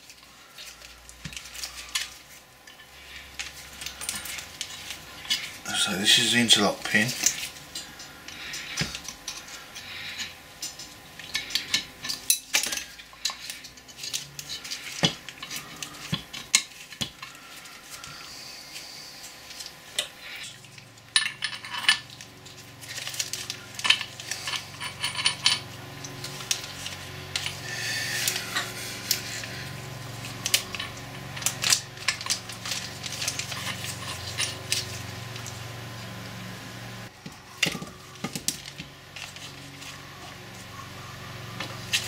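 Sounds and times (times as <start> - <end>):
metal parts clinking and tapping: 0.0 - 18.2, 19.5 - 35.6, 37.2 - 40.7
low steady hum: 0.0 - 42.0.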